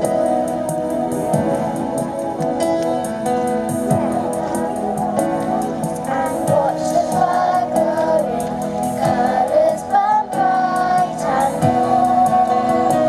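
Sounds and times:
instrumental backing with beat: 0:00.0 - 0:13.0
children's choir singing: 0:05.9 - 0:13.0.

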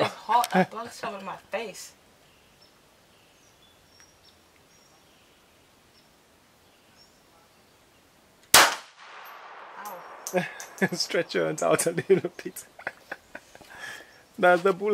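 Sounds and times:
pistol shot: 0:08.5 - 0:10.4.

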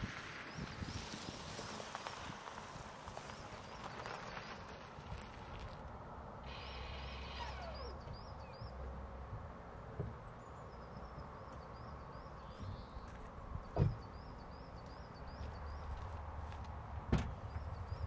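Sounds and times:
car door shutting: 0:13.7 - 0:14.1, 0:17.1 - 0:17.4.

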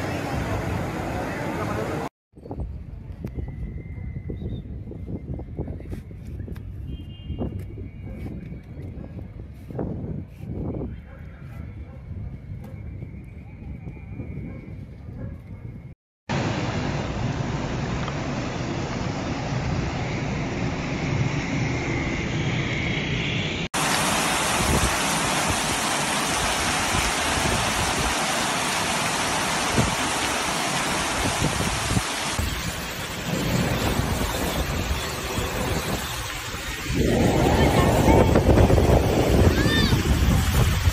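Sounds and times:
heavy rain: 0:16.3 - 0:18.6, 0:23.8 - 0:40.9
car splashing through floodwater: 0:23.8 - 0:40.9
floodwater rushing: 0:23.8 - 0:40.9.

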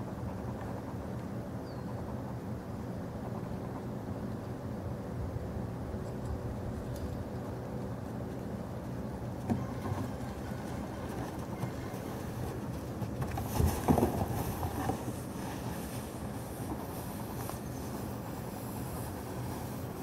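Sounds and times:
plastic barrel scraping on dirt: 0:09.4 - 0:17.0.

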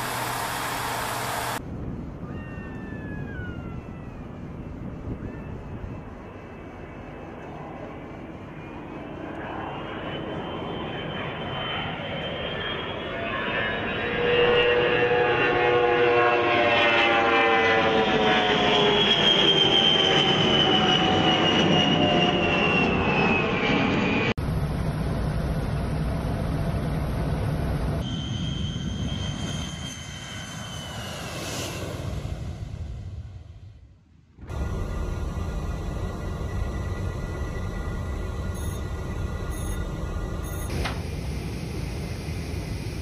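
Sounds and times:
low rumble: 0:00.0 - 0:10.6, 0:31.0 - 0:43.0
jet engine whine: 0:00.0 - 0:43.0.

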